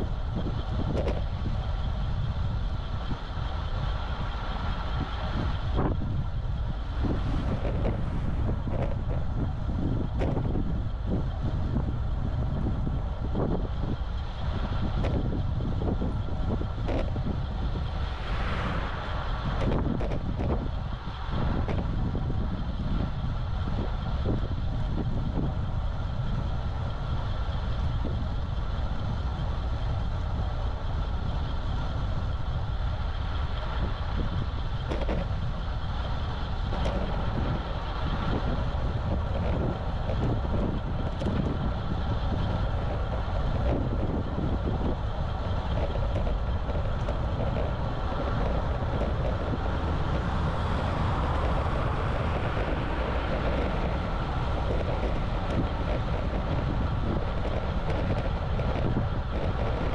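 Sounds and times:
wind and road noise from bike: 0.0s - 59.9s
faint ticks: 15.0s - 15.2s, 36.7s - 37.2s, 52.3s - 59.9s.

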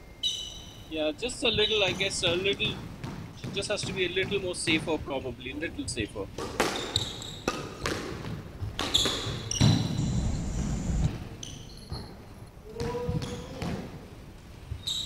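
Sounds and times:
shoes squeaking on wooden floor: 6.5s - 13.6s.

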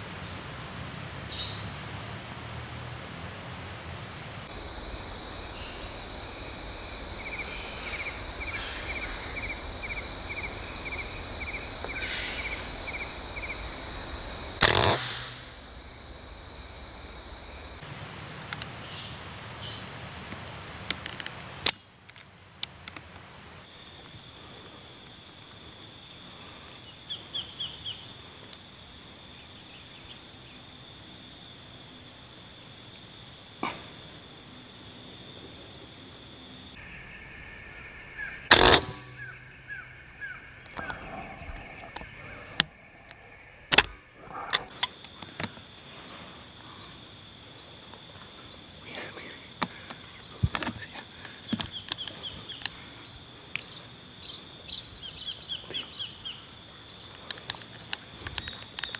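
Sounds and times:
insect buzzing: 0.0s - 4.5s, 17.8s - 58.9s.

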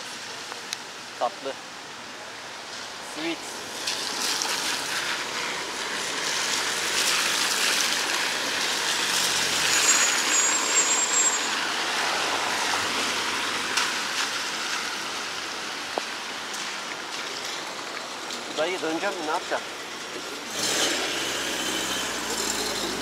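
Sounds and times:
tyres hissing on wet road: 0.0s - 23.0s
brief high squeal: 9.7s - 11.7s.

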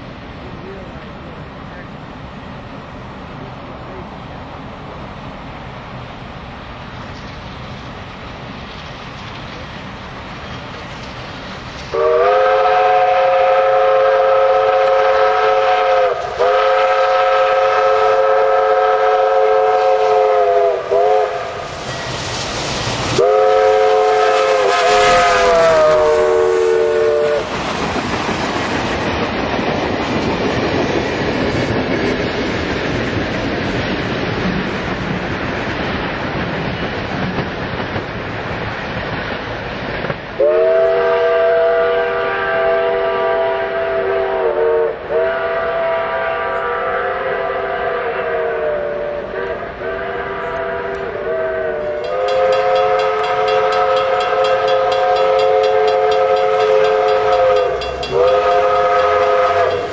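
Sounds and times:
train passing with exhaust: 0.0s - 59.9s
steam locomotive chime whistle: 11.9s - 22.4s, 23.0s - 27.6s, 40.4s - 59.9s.

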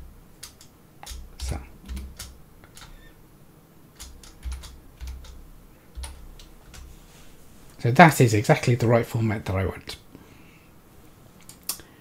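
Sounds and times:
keyboard typing clicks: 0.4s - 3.1s, 4.0s - 6.9s.

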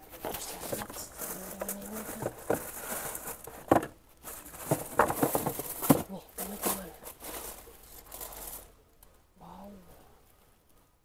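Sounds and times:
cardboard box being handled: 0.0s - 8.6s
tissue paper rustling: 0.0s - 8.7s.

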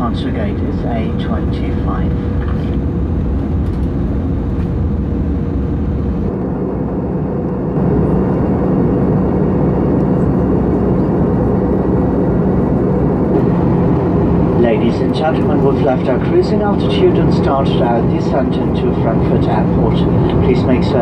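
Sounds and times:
airplane cabin drone: 0.0s - 21.0s
low hum: 0.0s - 21.0s.

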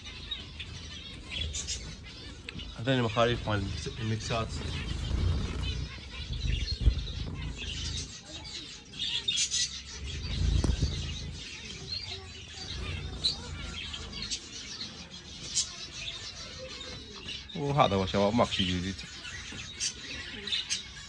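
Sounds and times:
wings fluttering: 0.0s - 17.6s
finches chirping: 0.0s - 21.0s
low thumps: 10.0s - 11.6s.

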